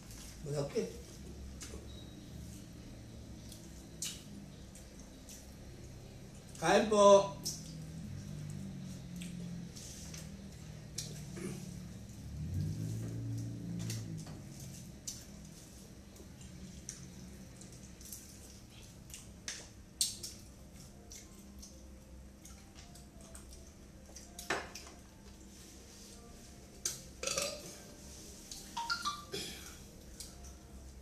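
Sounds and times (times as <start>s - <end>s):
dishes and utensils clinking: 27.2s - 27.8s.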